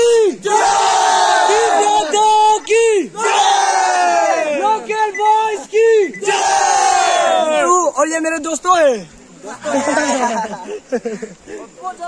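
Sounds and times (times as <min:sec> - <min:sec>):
young men yelling and whooping: 0:00.0 - 0:12.0.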